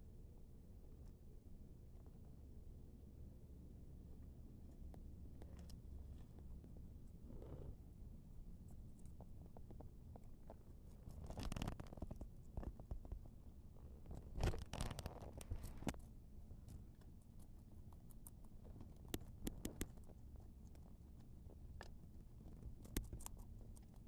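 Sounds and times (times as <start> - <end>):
guinea pigs munching vegetables: 4.3 - 24.0.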